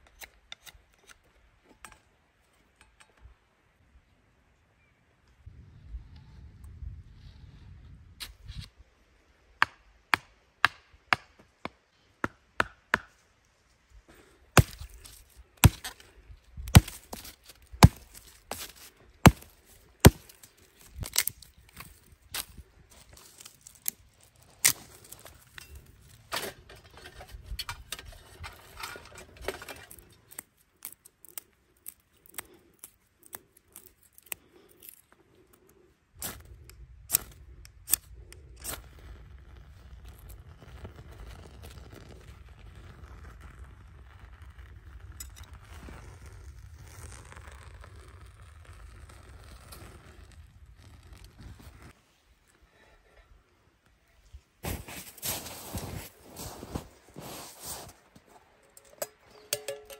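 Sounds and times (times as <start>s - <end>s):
scraping and handling noise: 14.1s - 36.5s, 51.1s - 59.9s.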